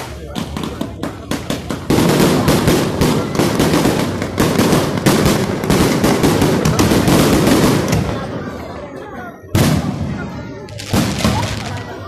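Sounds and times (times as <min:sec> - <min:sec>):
fireworks bangs and crackling: 0:00.0 - 0:12.0.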